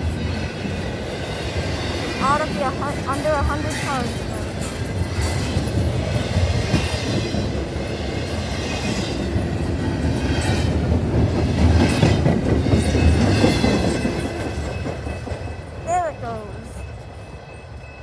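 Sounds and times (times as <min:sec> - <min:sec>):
wheels clacking over rail joints: 0:00.0 - 0:15.9
freight train rumbling: 0:00.0 - 0:18.0.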